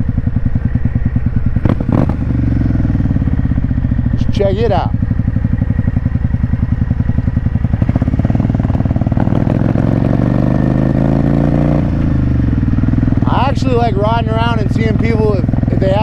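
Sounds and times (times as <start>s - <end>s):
motorcycle engine accelerating: 0.0s - 16.0s.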